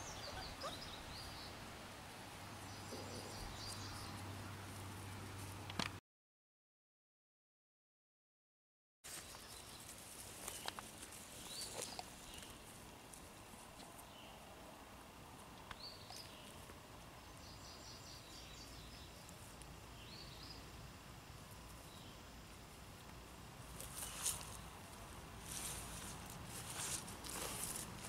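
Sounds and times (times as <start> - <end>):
faint outdoor ambience: 0.0 - 6.0, 9.1 - 28.0.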